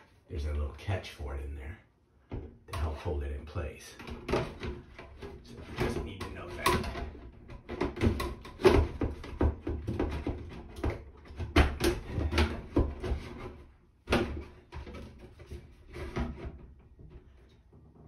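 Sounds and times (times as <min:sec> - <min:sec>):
plastic fan assembly knocking and rattling: 0:04.0 - 0:18.0.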